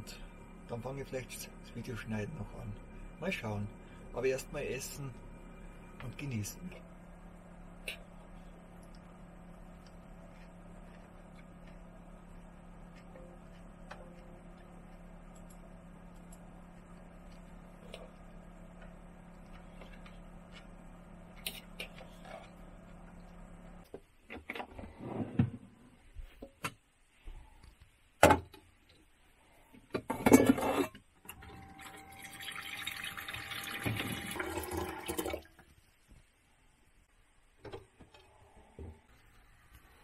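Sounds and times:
low steady hum: 0:00.0 - 0:40.0
faucet running into pot: 0:31.8 - 0:35.6.

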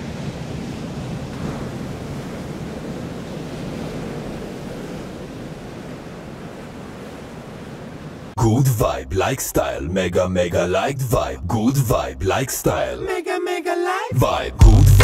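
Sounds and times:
breaking waves: 0:00.0 - 0:08.4.

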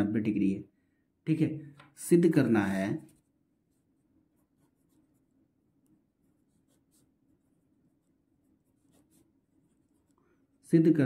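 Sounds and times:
pen scratching on paper: 0:03.1 - 0:10.2.

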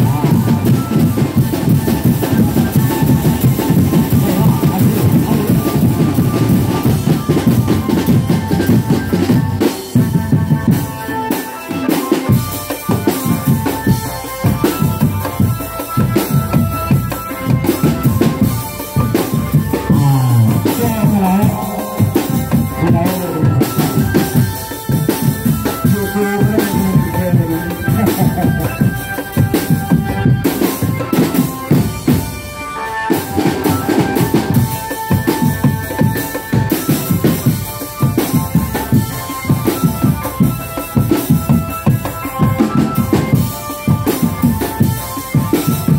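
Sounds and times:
pitch-bending melodic line: 0:00.0 - 0:35.6
loud music with driving drums: 0:00.0 - 0:45.9.

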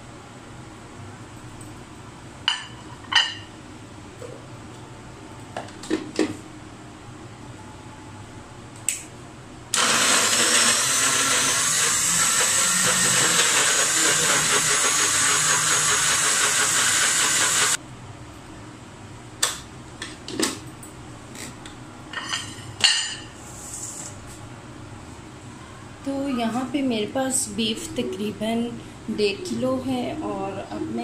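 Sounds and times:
food chopper motor running: 0:09.8 - 0:17.8.

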